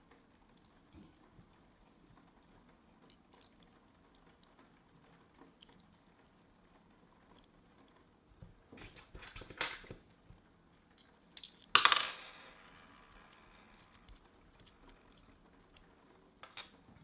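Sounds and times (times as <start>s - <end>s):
small metal parts clicking: 2.2s - 6.1s, 10.9s - 17.0s.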